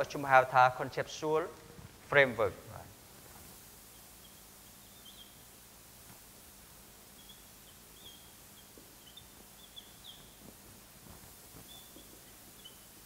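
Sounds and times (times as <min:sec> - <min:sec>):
faint high-pitched squeaks: 0:07.2 - 0:13.0.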